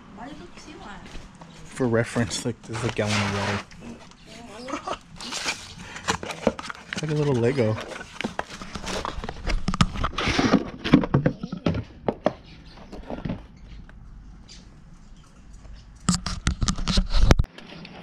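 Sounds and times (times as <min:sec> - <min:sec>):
cardboard box rustling and scraping: 0:02.6 - 0:11.8.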